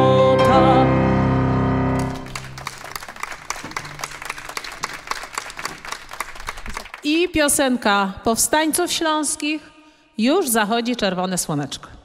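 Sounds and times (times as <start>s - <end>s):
soprano voice with cello piano trombone: 0.0s - 1.4s
hand clapping: 2.0s - 7.0s.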